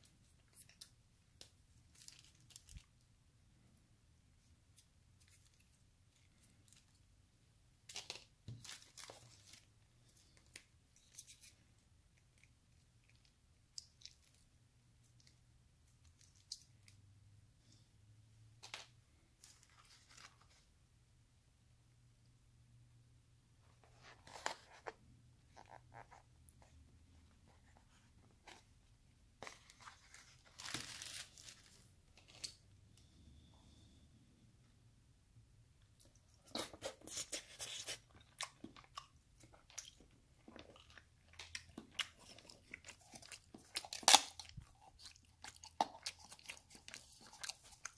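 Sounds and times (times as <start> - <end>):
packets ripping and crinkling: 29.8 - 32.5.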